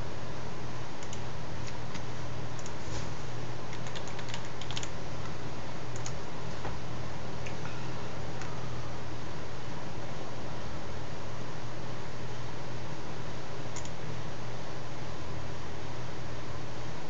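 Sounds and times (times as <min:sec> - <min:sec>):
steady hiss and low hum: 0:00.0 - 0:17.0
computer keyboard typing: 0:01.0 - 0:02.8, 0:03.7 - 0:05.0, 0:05.9 - 0:06.2, 0:13.8 - 0:14.0.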